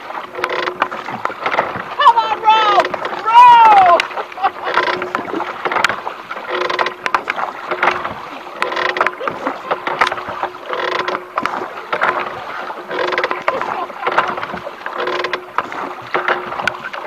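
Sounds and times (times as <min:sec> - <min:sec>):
oar splashing through water: 0:00.0 - 0:17.0.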